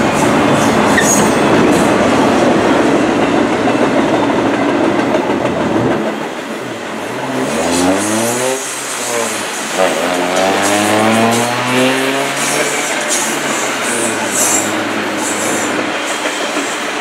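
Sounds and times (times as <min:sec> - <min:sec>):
steel wheels rolling on rail: 0:00.0 - 0:17.0
road vehicle passing: 0:07.3 - 0:16.0.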